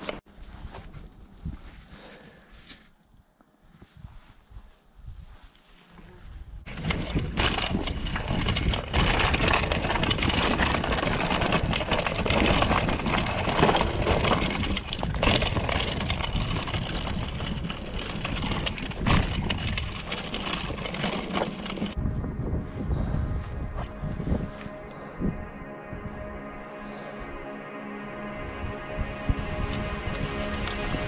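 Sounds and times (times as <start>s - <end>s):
bike tyre noise: 3.8s - 25.1s
bike frame rattling over rocks: 6.7s - 22.0s.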